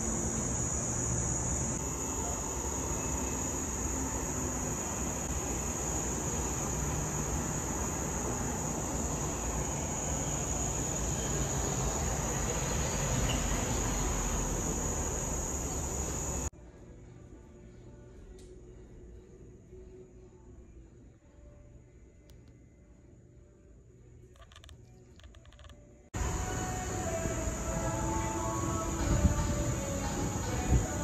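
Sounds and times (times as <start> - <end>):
high-pitched insect chorus: 0.0 - 16.5, 24.4 - 31.0
rushing background noise: 0.0 - 16.5, 25.4 - 31.0.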